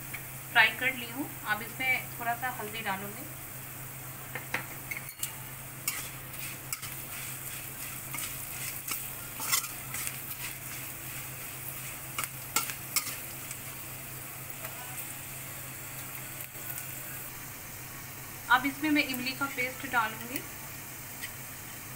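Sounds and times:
food sizzling in oil: 0:00.0 - 0:21.9
spatula scraping a pan: 0:04.9 - 0:13.6.

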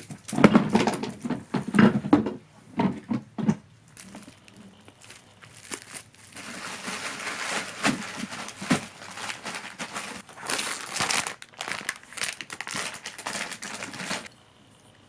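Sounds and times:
cling film crinkling: 0:03.9 - 0:14.3.

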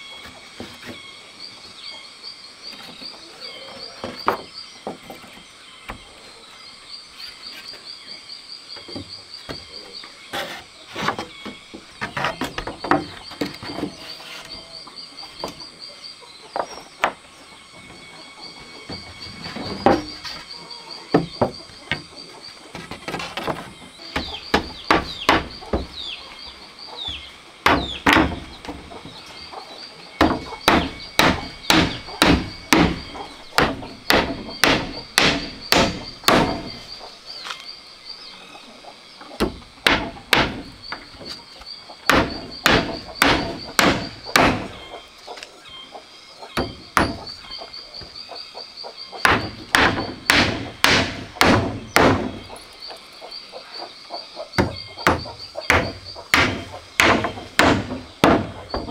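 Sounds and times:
hammer driving nails into wood: 0:33.6 - 0:36.7, 0:49.3 - 0:52.3.

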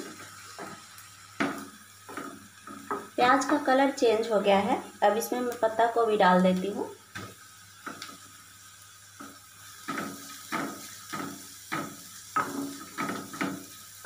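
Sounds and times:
spatula scraping a pan: 0:09.8 - 0:13.8.

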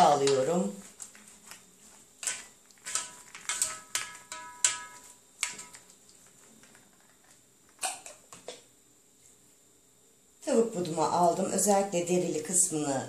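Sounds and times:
faint brushing: 0:00.1 - 0:06.8
brush knocking on ringing tray: 0:03.0 - 0:05.8.

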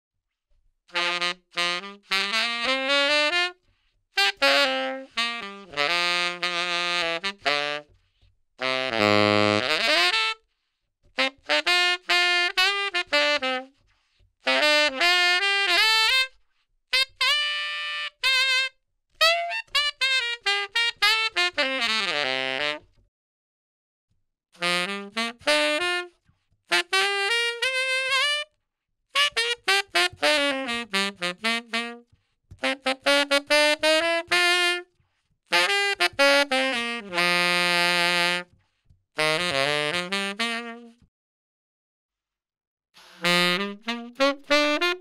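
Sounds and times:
tenor saxophone playing quick runs: 0:00.9 - 0:03.6, 0:04.2 - 0:07.9, 0:08.6 - 0:10.4, 0:11.2 - 0:13.7, 0:14.4 - 0:22.9, 0:24.6 - 0:28.5, 0:29.2 - 0:32.0, 0:32.6 - 0:34.9, 0:35.5 - 0:38.5, 0:39.2 - 0:41.0, 0:43.0 - 0:45.0.

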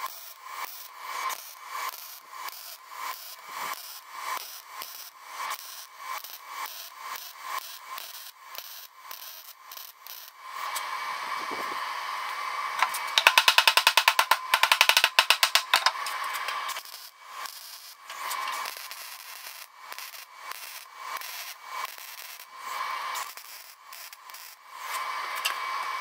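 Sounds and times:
welder crackling and sputtering: 0:00.0 - 0:26.0.

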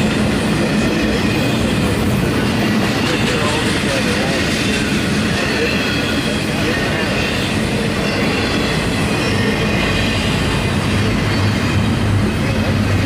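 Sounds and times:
train wheels running on rails: 0:00.0 - 0:13.0.

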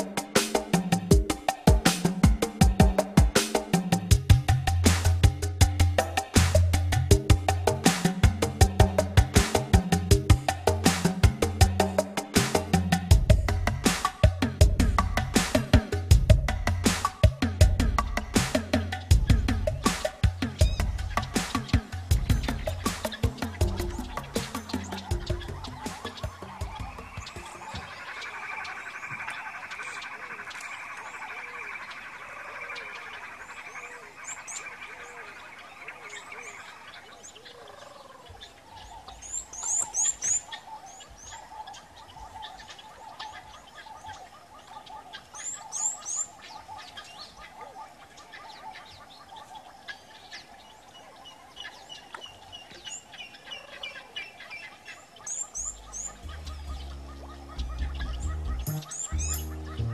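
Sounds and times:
background bird chorus: 0:00.0 - 0:59.9
high rising bird chirps: 0:18.0 - 0:59.9.

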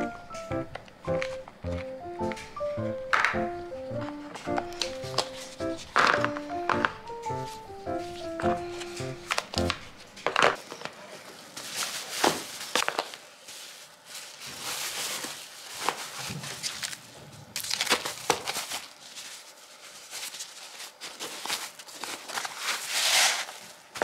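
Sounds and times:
insulated bag rustling and crinkling: 0:08.0 - 0:24.0.

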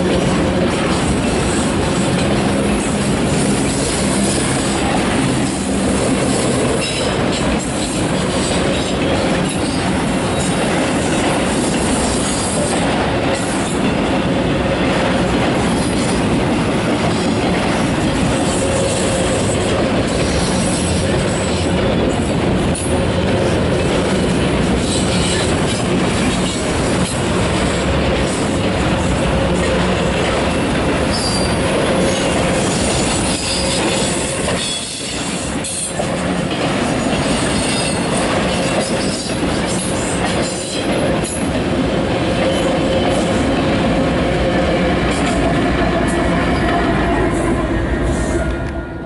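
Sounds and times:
clickety-clack at rail joints: 0:00.0 - 0:49.0
freight train wheels on rails: 0:00.0 - 0:49.0.

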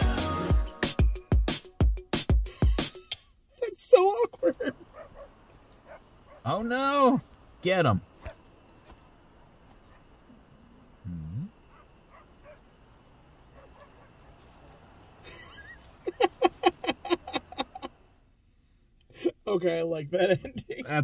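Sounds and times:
crickets chirping: 0:03.6 - 0:21.0
loud laughter: 0:04.3 - 0:05.2, 0:15.2 - 0:18.0.

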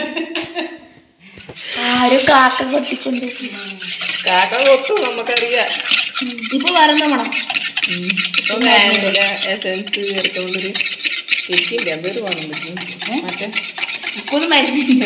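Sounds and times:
person speaking: 0:01.3 - 0:15.0
whisk beating eggs in bowl: 0:01.4 - 0:15.0.

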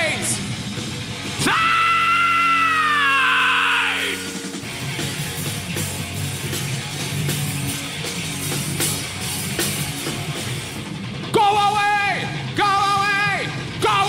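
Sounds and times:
heavy rock band playing: 0:00.0 - 0:14.0
man yelling a long high note: 0:01.4 - 0:04.4, 0:11.4 - 0:14.0.

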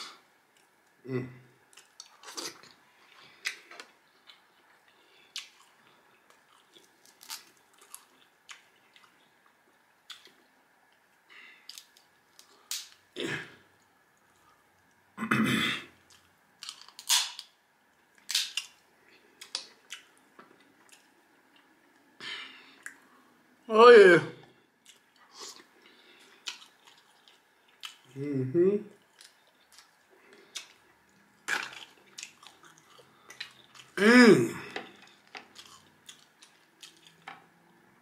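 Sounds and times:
crab shells cracking: 0:16.6 - 0:17.5, 0:18.2 - 0:18.8.

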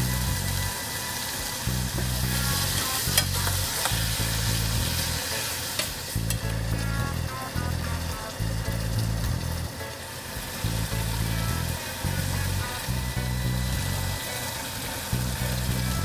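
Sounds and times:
background music with bass: 0:00.0 - 0:14.4, 0:15.0 - 0:16.0
curry sizzling in a saucepan: 0:00.0 - 0:16.0
metal turner clicking on pan: 0:02.7 - 0:04.0, 0:05.8 - 0:06.5.

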